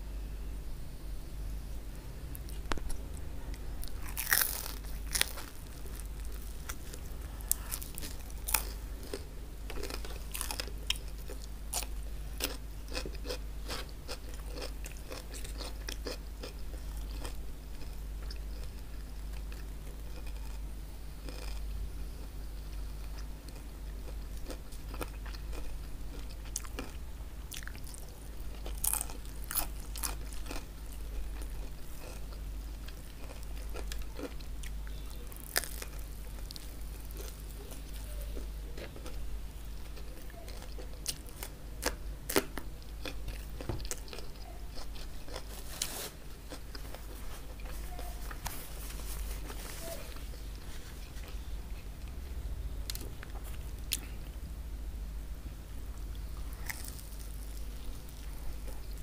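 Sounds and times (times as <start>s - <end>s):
steady low hum: 0.0s - 59.0s
crispy bread crunching: 3.6s - 52.2s, 56.1s - 59.0s.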